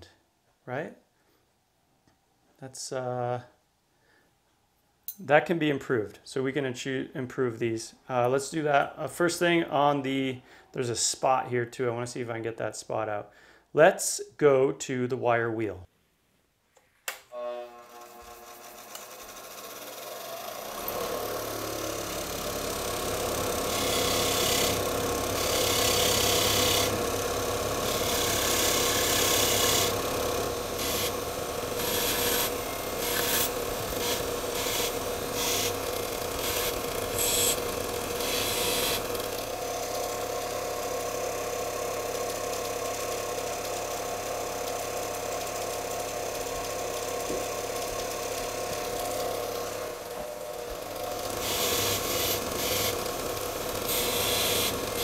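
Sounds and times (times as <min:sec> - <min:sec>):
bench grinder motor humming: 0:17.5 - 0:55.0
wire wheel scratching metal: 0:27.8 - 0:39.0, 0:51.3 - 0:55.0.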